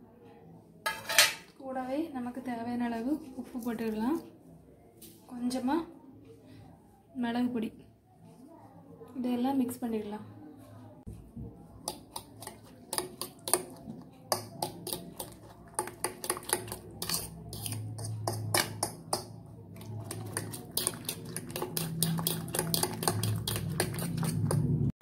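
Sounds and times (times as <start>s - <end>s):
utensil clinking on ceramic bowl: 11.9s - 24.7s.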